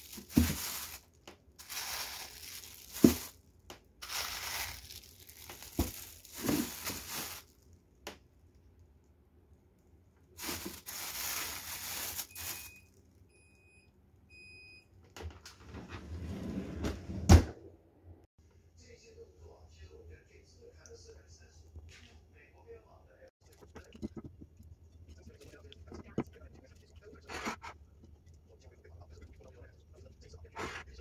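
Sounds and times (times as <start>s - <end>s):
plastic bags crinkling: 0.0s - 3.4s, 4.0s - 7.7s, 10.4s - 12.8s.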